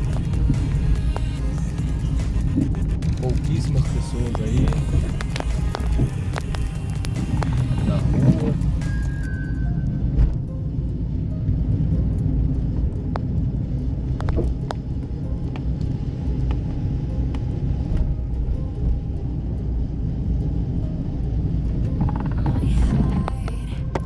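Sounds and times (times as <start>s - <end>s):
car driving on wet road: 0.0s - 24.0s
light ticks: 2.5s - 7.7s, 12.1s - 13.5s.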